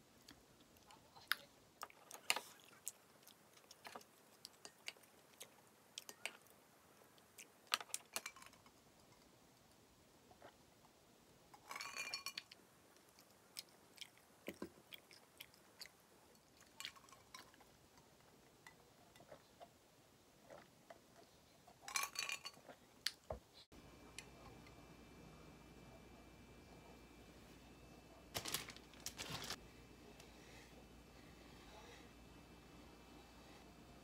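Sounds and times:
faint room hum: 0.0s - 34.0s
soft chewing: 0.1s - 11.0s, 12.4s - 22.0s.

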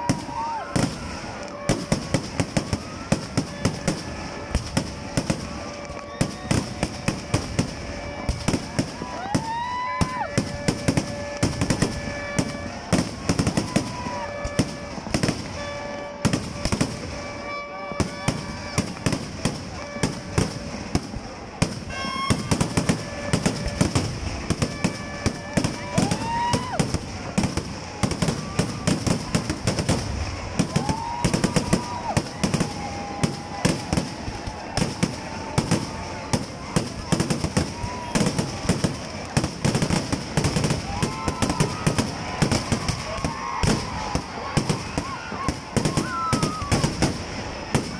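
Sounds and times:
firework whistle: 0.0s - 47.9s
fireworks bangs and crackling: 0.0s - 47.9s
whistling tones: 21.9s - 24.0s.

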